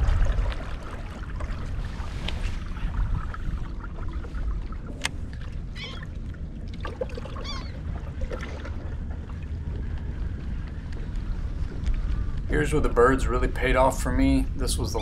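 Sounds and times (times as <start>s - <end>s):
wind and water rumble: 0.0s - 15.0s
seabird calls: 5.6s - 6.2s, 7.2s - 8.1s.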